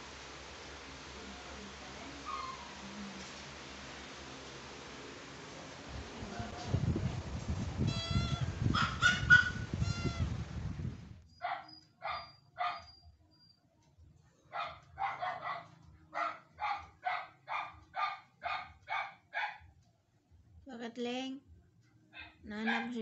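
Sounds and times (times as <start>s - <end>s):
small dog barking: 8.7s - 10.2s, 11.4s - 12.9s, 14.5s - 19.7s, 22.1s - 23.0s.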